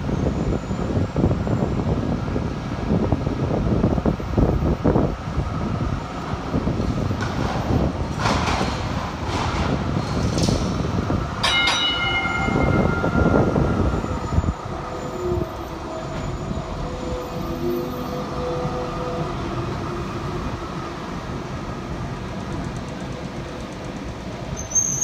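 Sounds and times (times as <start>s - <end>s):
tram wheels rumbling on rails: 0.0s - 25.0s
metallic ringing tone: 11.4s - 15.4s.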